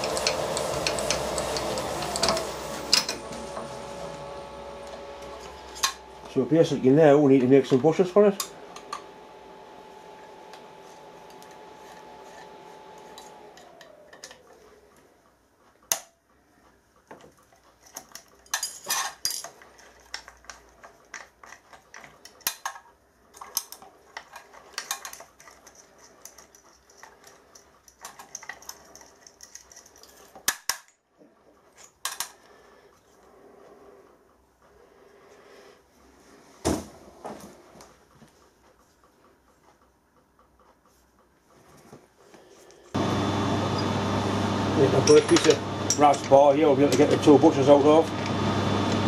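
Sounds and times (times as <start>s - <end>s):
milling machine spindle whine: 0.0s - 14.8s, 43.0s - 49.0s.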